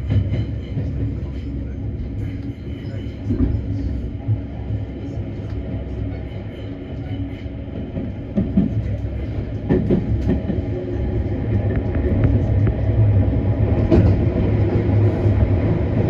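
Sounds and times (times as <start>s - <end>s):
train wheel knocks: 0.0s - 1.2s, 7.7s - 10.8s, 13.8s - 14.4s
train interior rumble: 0.0s - 16.0s.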